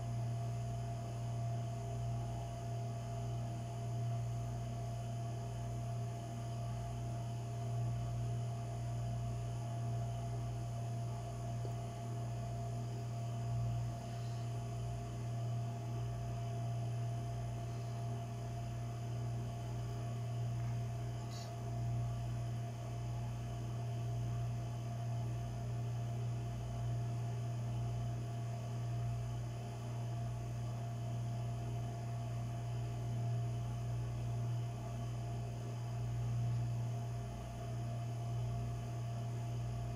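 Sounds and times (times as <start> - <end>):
low hum: 9.6 - 23.0.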